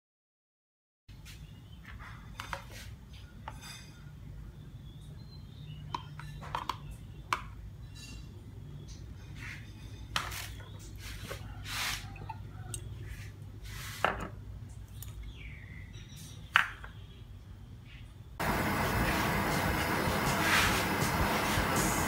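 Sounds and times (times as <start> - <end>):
low steady hum: 18.3 - 22.0.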